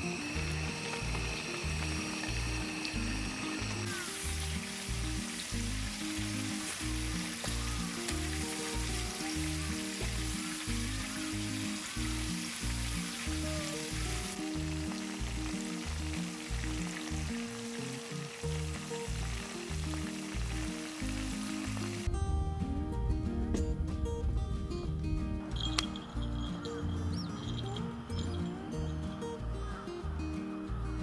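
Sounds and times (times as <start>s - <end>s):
food sizzling in hot oil: 0.0s - 22.1s.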